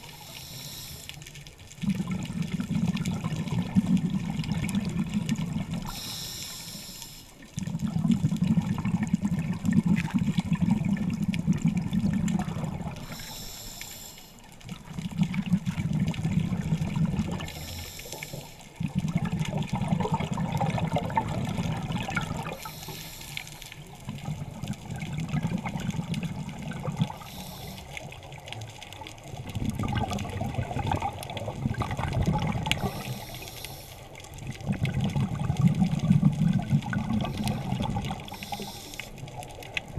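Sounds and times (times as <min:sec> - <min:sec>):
regulator inhale hiss: 0:00.0 - 0:01.4, 0:05.8 - 0:07.4, 0:13.0 - 0:14.5, 0:17.4 - 0:18.7, 0:22.5 - 0:23.8, 0:27.1 - 0:28.1, 0:32.8 - 0:34.2, 0:37.3 - 0:39.3
exhaled bubbles rushing: 0:01.7 - 0:06.2, 0:07.5 - 0:13.2, 0:14.6 - 0:22.8, 0:23.6 - 0:33.4, 0:34.2 - 0:39.9.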